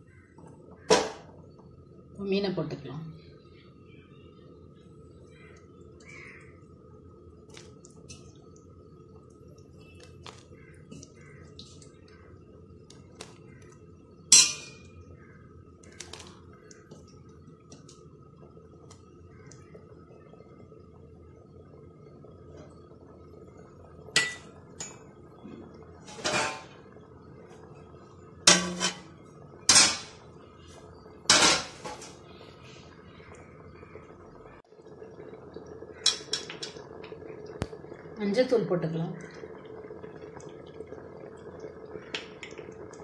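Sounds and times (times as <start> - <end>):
metal utensils clanking on pot: 14.3 - 14.9, 24.2 - 25.0, 26.1 - 26.7, 28.5 - 29.1, 29.7 - 30.2, 31.3 - 32.2, 36.0 - 36.8.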